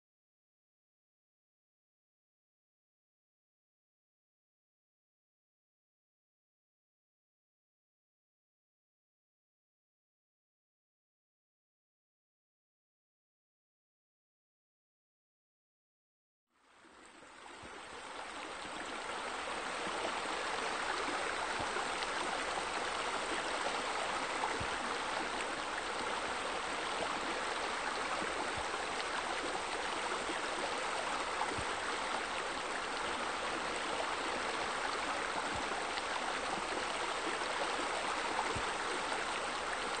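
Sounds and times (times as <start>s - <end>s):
running water: 16.7s - 40.0s.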